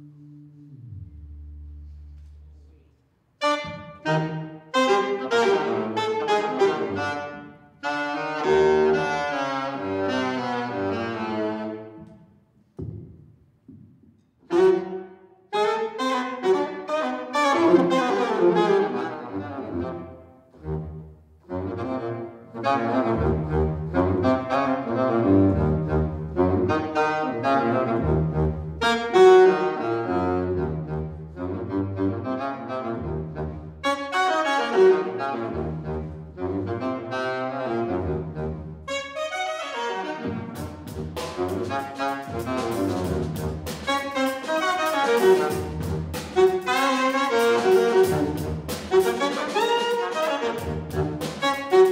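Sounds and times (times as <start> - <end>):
saxophone playing jazz: 3.4 - 12.0, 14.5 - 51.9.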